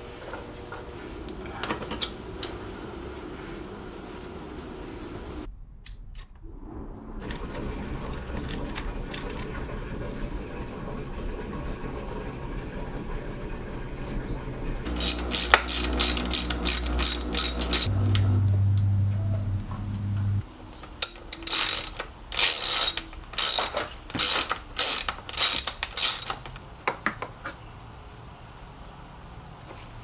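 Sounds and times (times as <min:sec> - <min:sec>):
metal tools clinking: 0:14.9 - 0:17.9, 0:20.8 - 0:26.6
ratchet wrench clicking: 0:14.9 - 0:17.9, 0:20.9 - 0:26.6
low hum: 0:14.9 - 0:20.5.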